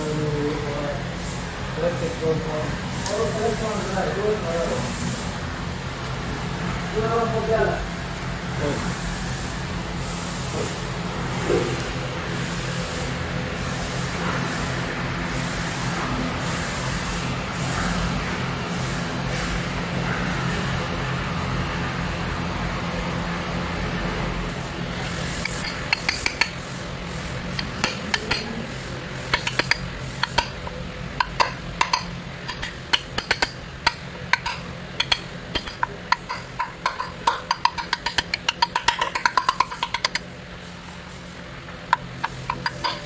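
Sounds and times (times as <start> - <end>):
steady low hum: 23.8 - 43.0
hammer tapping metal: 25.2 - 40.3, 41.9 - 43.0.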